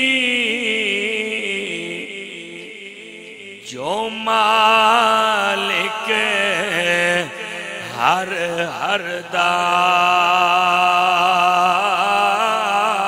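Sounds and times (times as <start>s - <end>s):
man chanting melodically: 0.0s - 13.0s.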